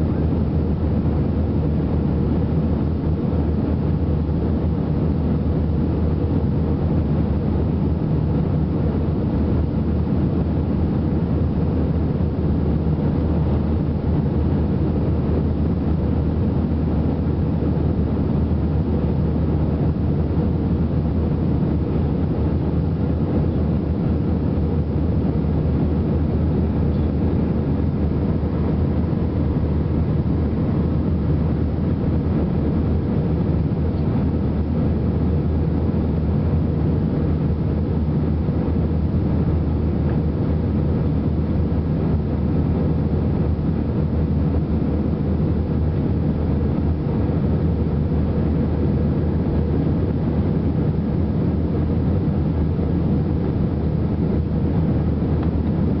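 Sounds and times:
jet engine cabin drone: 0:00.0 - 0:56.0.

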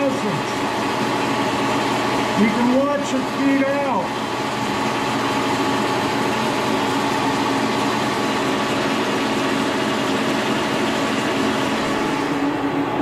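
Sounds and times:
milling machine running: 0:00.0 - 0:13.0.

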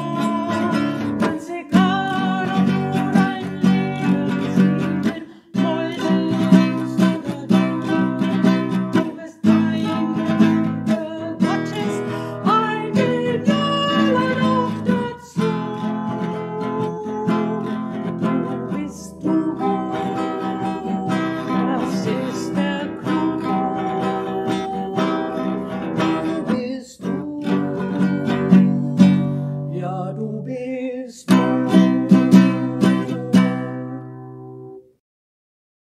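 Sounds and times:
woman singing a hymn: 0:00.0 - 0:25.6, 0:26.3 - 0:29.2
strummed classical guitar: 0:00.0 - 0:35.0.

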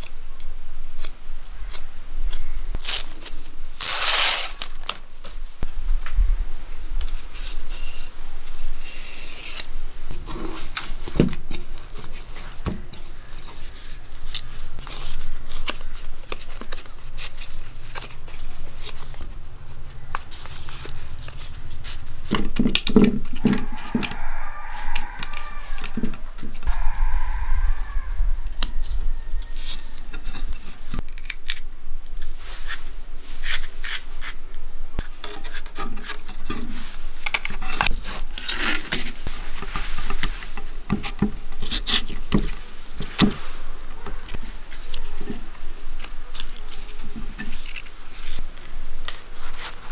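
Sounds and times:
leaves rustling and crinkling: 0:00.0 - 0:49.9
knife scraping leaf stem: 0:00.9 - 0:05.0, 0:07.1 - 0:19.4, 0:32.2 - 0:34.4, 0:46.0 - 0:49.9.

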